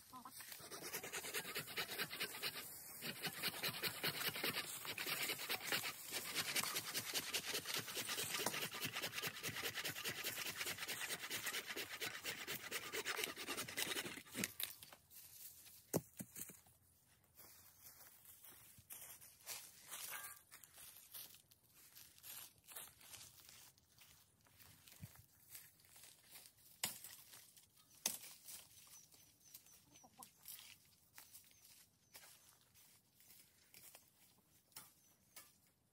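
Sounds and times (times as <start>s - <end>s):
dry leaves crackling underfoot: 17.4s - 29.0s, 30.2s - 34.6s.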